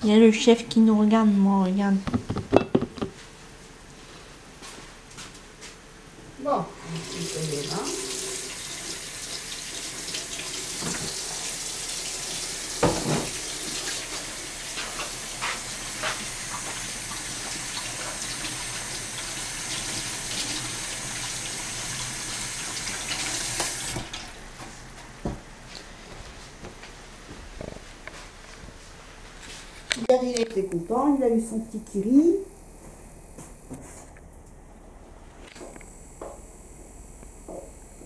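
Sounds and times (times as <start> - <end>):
knocks of things handled: 2.0 - 3.2.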